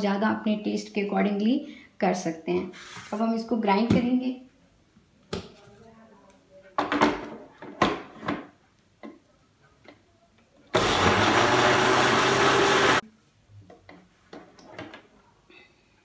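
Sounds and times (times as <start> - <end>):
blender running: 10.8 - 13.0.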